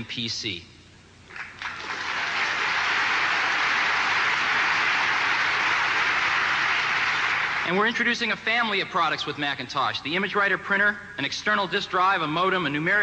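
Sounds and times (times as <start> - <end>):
large audience applauding: 1.3 - 7.8.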